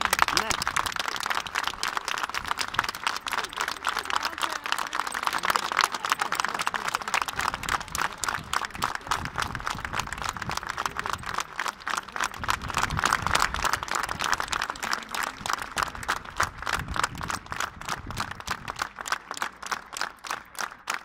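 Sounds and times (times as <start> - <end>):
people clapping in rhythm: 0.0 - 21.0.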